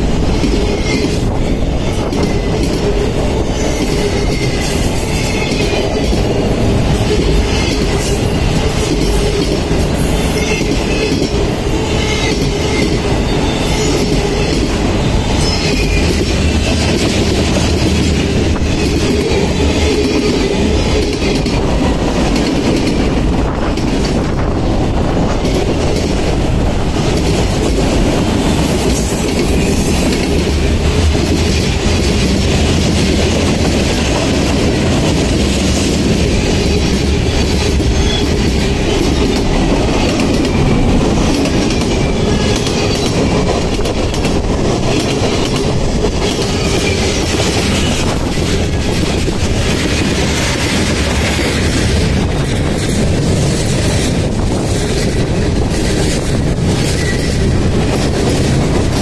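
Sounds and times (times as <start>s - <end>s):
train wheels clattering over track: 0.0s - 59.0s.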